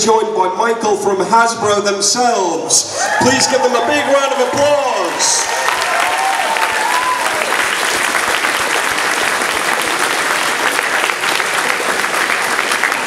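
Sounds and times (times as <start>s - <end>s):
audience applauding: 3.0s - 13.0s.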